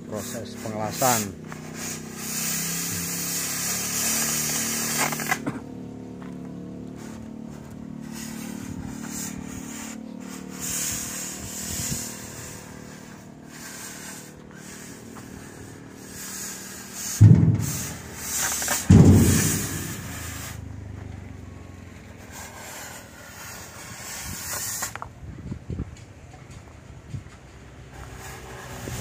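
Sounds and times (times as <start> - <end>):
cutting torch hissing: 0.0 - 5.6, 6.9 - 25.1, 27.9 - 29.0
loud rushing bursts: 8.0 - 25.0.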